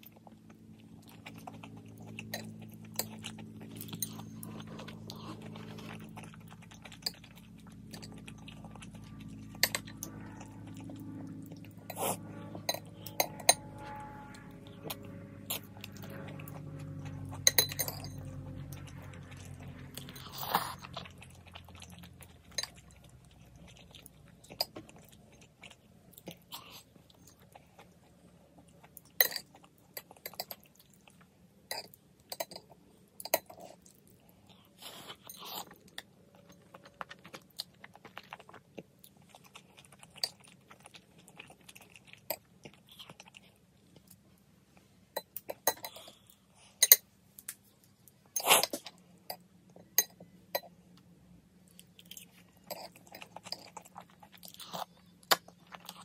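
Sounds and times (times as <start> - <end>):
chewing and slurping noodles: 0.0 - 44.2, 51.6 - 56.0.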